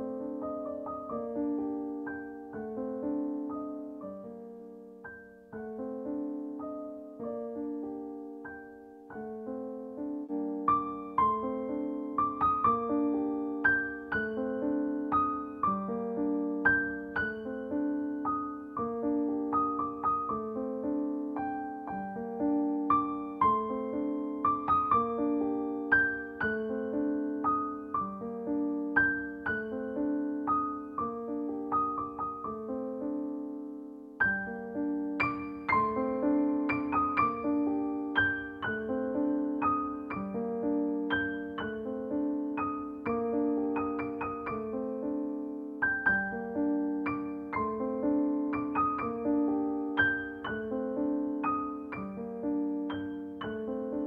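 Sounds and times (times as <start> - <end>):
gentle piano music: 0.0 - 54.0.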